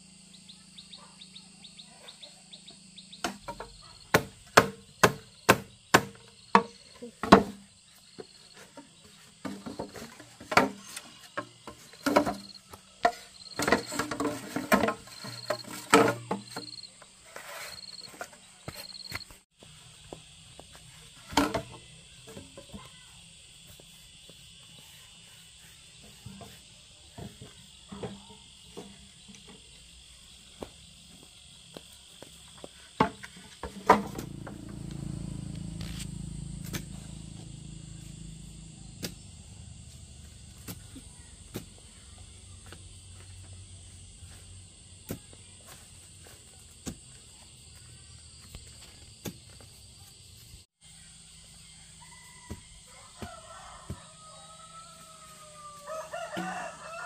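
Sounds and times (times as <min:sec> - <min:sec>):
insects chirring: 0:00.0 - 0:57.0
bamboo poles knocking: 0:03.2 - 0:07.6, 0:11.4 - 0:16.8.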